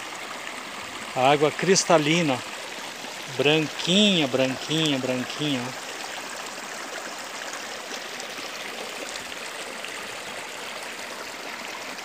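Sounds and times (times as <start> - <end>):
waterfall rushing: 0.8 - 6.6.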